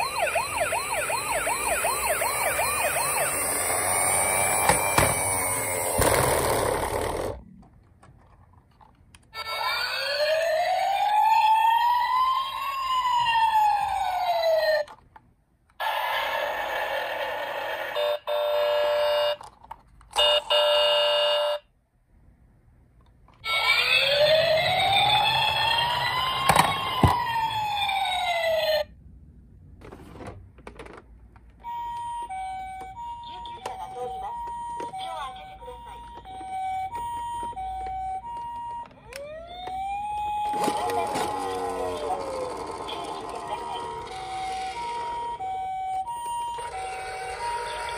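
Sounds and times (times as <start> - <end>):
two-note hi-lo siren: 0.0 - 6.0
toy electronic sirens wailing: 0.0 - 7.4, 9.3 - 15.0, 15.8 - 19.5, 20.2 - 21.6, 23.4 - 28.9, 31.6 - 47.9.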